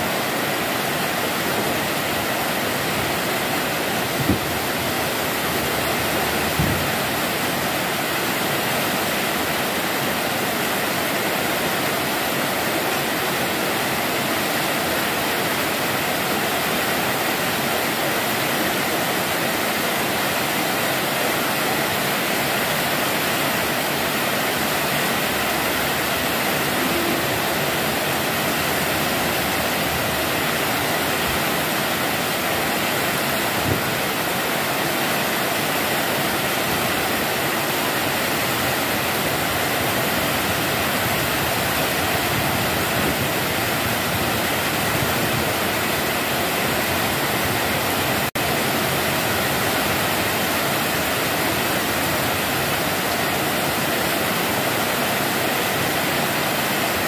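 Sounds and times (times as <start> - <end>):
heavy rain: 0.0 - 57.0.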